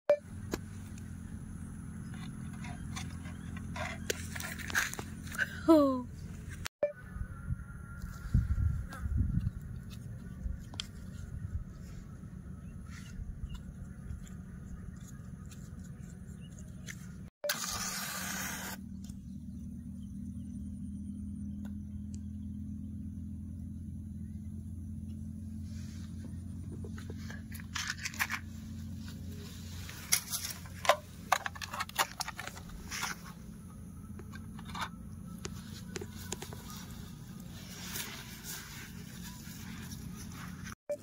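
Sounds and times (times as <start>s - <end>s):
short scratchy hiss: 17.5s - 18.8s.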